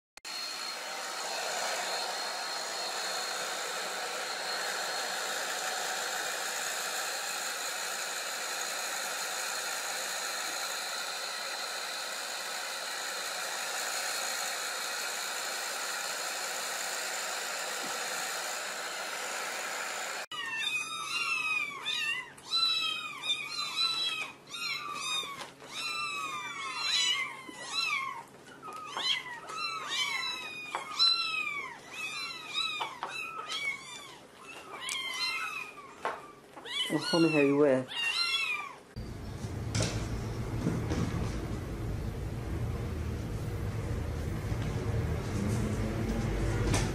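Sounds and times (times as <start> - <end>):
hair dryer blowing: 0.3 - 20.3, 36.9 - 37.7, 38.9 - 46.9
kittens meowing: 20.3 - 38.9.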